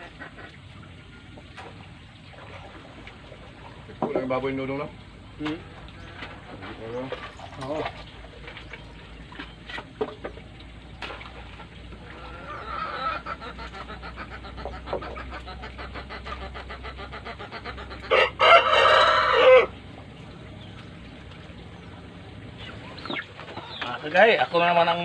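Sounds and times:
rooster crowing: 0:18.1 - 0:19.8.

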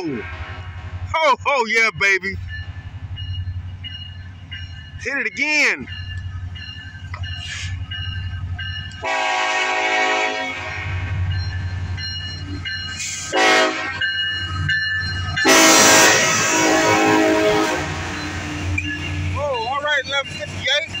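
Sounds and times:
diesel locomotive rumble: 0:00.0 - 0:21.0
locomotive air horn: 0:09.0 - 0:11.1, 0:13.0 - 0:14.0, 0:15.4 - 0:18.2.

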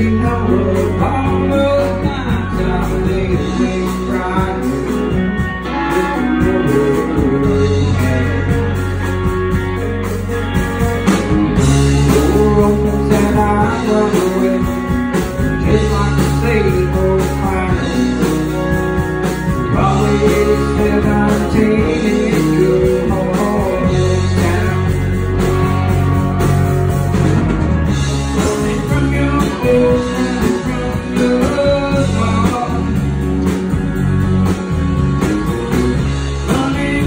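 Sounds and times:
man singing: 0:00.0 - 0:09.1, 0:11.6 - 0:25.5, 0:28.1 - 0:33.1, 0:36.2 - 0:37.0
country-rock band playing: 0:00.0 - 0:37.0.

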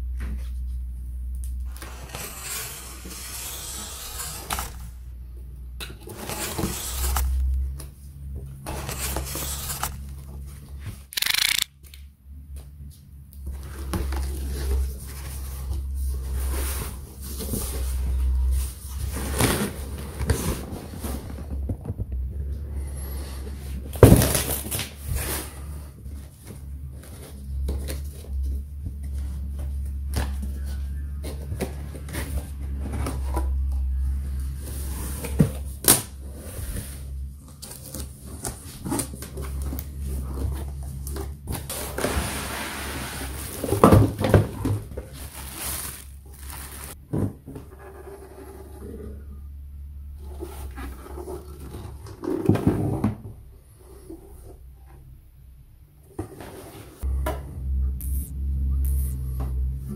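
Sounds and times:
plastic wrapping rustling: 0:41.8 - 0:47.0
steady low rumble: 0:57.0 - 0:59.9.

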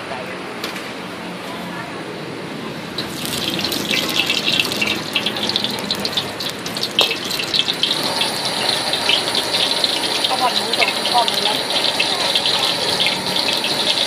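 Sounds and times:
hot oil sizzling in a wok: 0:03.0 - 0:14.0
metal ladle in wok: 0:03.0 - 0:14.0.

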